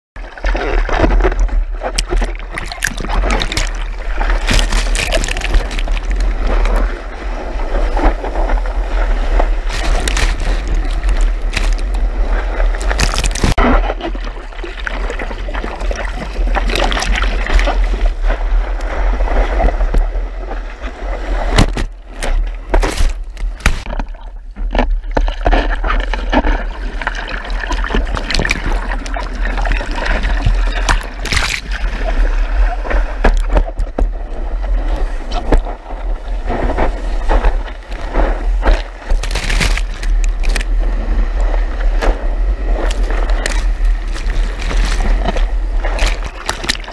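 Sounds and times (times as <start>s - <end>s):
constant low rumble: 0.2s - 46.9s
surf rushing and splashing: 0.2s - 46.9s
water slapping on camera housing: 0.9s - 7.0s, 9.4s - 14.0s, 21.5s - 24.8s, 27.7s - 31.9s, 36.7s - 40.8s, 41.4s - 46.9s.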